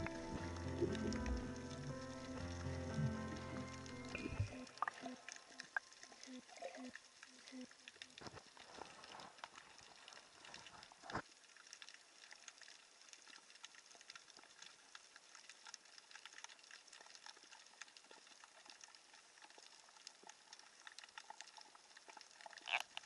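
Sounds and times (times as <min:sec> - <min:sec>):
low underwater thump: 0:00.0 - 0:04.6
underwater crackle of tiny clicks: 0:00.0 - 0:23.0.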